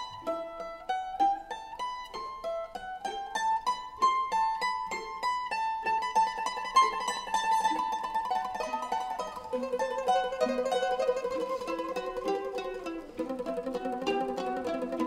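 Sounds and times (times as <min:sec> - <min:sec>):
plucked-string melody: 0:00.0 - 0:15.0.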